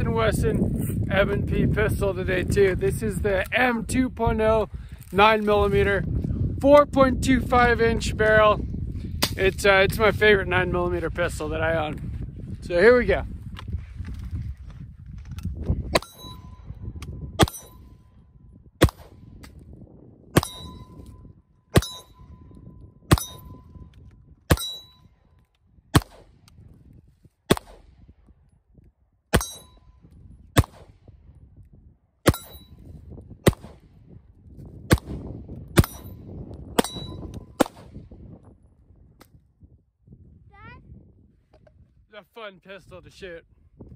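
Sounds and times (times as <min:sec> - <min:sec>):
steel plate target ringing: 0:16.0 - 0:16.6, 0:20.4 - 0:21.0, 0:21.8 - 0:22.4, 0:23.1 - 0:23.7, 0:24.5 - 0:25.1, 0:29.4 - 0:29.9, 0:36.8 - 0:37.3
pistol shots: 0:18.8 - 0:19.2, 0:20.4 - 0:20.8, 0:23.1 - 0:23.4, 0:25.9 - 0:26.3, 0:27.5 - 0:27.9, 0:30.6 - 0:31.0, 0:33.4 - 0:33.8, 0:34.9 - 0:36.1, 0:36.8 - 0:38.0.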